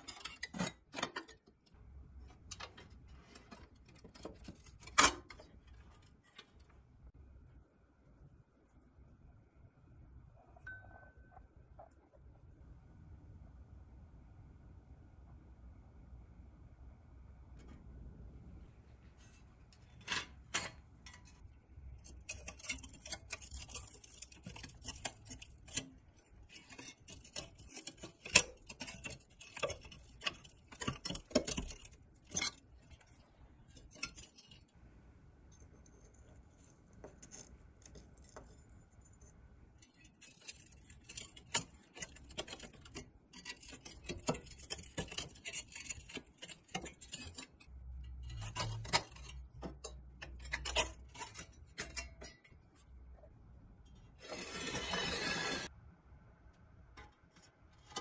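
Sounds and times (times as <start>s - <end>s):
metal parts clicking and scraping: 0.0s - 1.5s, 19.9s - 34.7s, 35.6s - 52.9s.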